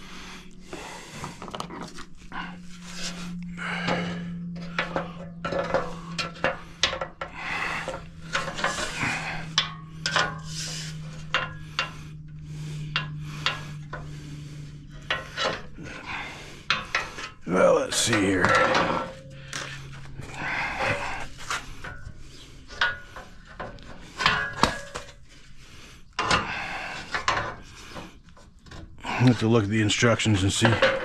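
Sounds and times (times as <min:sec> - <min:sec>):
low steady hum: 0:00.0 - 0:31.0
metal parts clinking and rattling: 0:03.8 - 0:14.0, 0:14.9 - 0:25.2, 0:29.9 - 0:31.0.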